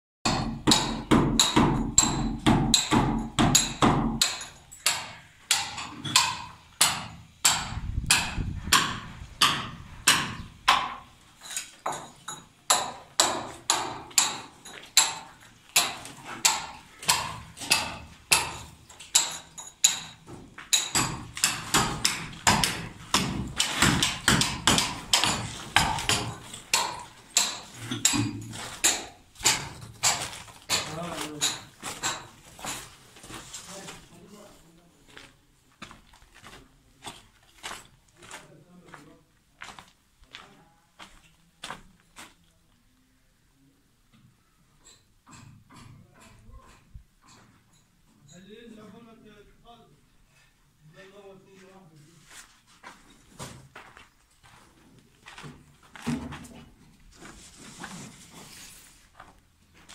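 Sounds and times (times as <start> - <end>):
hammer on masonry: 0.3 - 11.1, 11.8 - 32.8.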